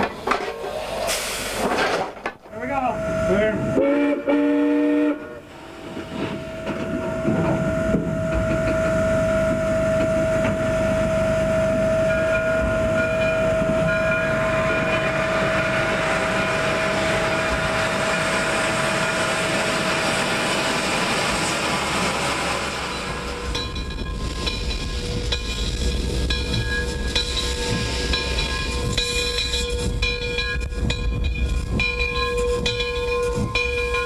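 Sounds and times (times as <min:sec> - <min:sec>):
steam locomotive running noise: 0:02.5 - 0:34.0
steam whistle: 0:03.2 - 0:05.5.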